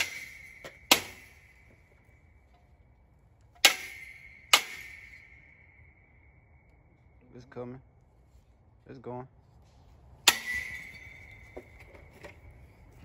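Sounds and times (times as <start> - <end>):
metal ringing tone: 0.0 - 7.3, 10.3 - 13.0
hammer blows on steel: 3.6 - 6.1.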